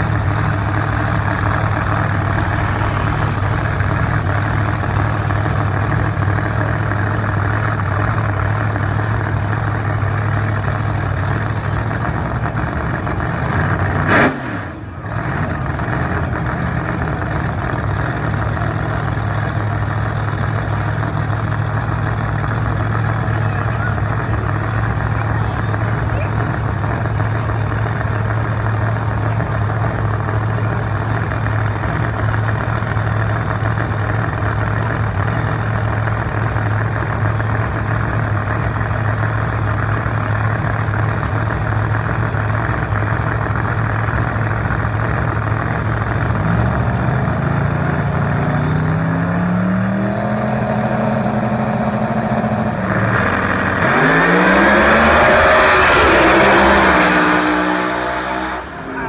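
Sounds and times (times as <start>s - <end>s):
race cars accelerating hard: 0.0s - 20.7s, 21.3s - 59.0s
race car engines idling: 0.0s - 59.0s
race car engines revving: 0.0s - 59.0s.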